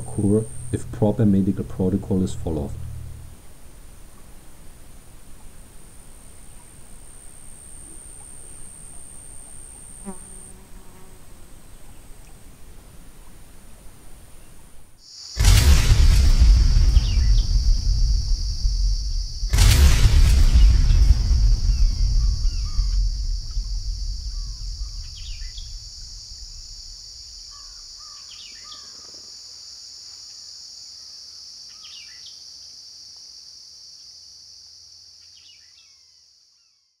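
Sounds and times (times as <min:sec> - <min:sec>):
deep rumble: 0:00.0 - 0:04.1, 0:15.4 - 0:27.8
high insect drone: 0:00.0 - 0:37.0
bird chirps: 0:21.6 - 0:26.5.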